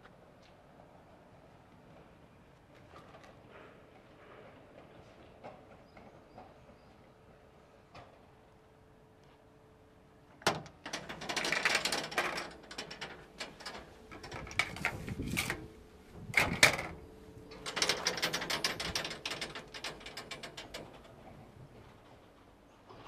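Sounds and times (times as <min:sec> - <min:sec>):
metal cabinet clattering: 0:10.8 - 0:21.6.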